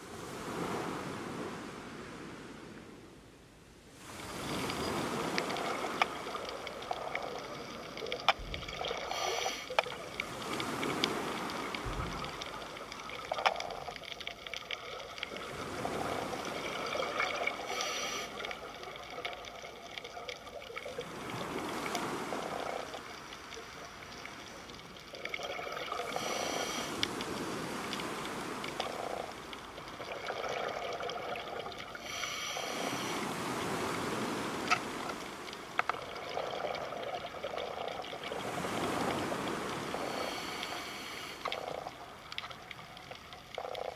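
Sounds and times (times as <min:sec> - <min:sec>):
sea water washing: 0:04.0 - 0:43.9
small clicks and pops: 0:04.6 - 0:15.4, 0:34.7 - 0:38.3, 0:41.4 - 0:43.9.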